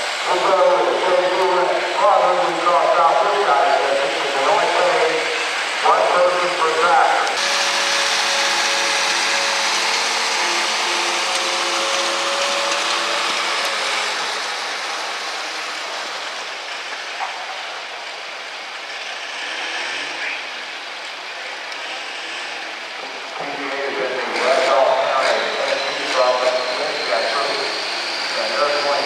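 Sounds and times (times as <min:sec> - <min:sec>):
tractor diesel engine running: 0:00.0 - 0:19.5.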